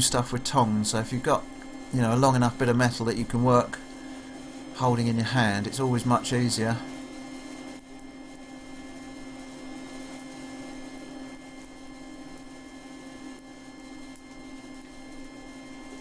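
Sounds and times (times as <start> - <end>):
forge blower fan humming: 0.0 - 16.0.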